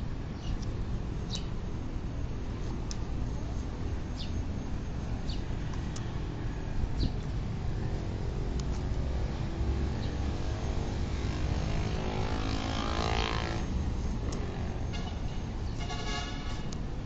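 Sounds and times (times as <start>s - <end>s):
city traffic rumble: 0.0s - 17.0s
vehicle passing: 4.8s - 16.6s.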